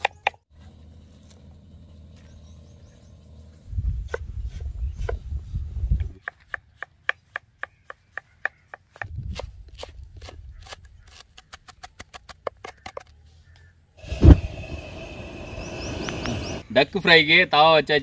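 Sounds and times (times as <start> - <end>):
knife chopping on wooden board: 6.2 - 11.2.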